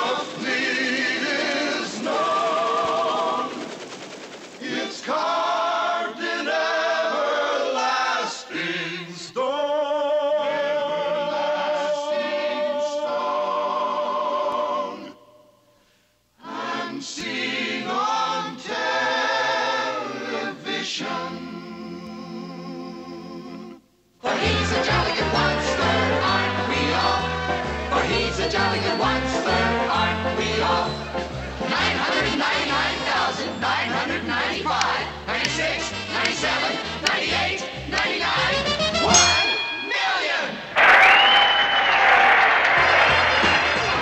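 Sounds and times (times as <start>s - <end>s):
choir singing: 0.0s - 3.8s, 4.6s - 15.4s, 16.4s - 41.4s, 42.8s - 44.0s
instrumental accompaniment: 34.8s - 40.3s.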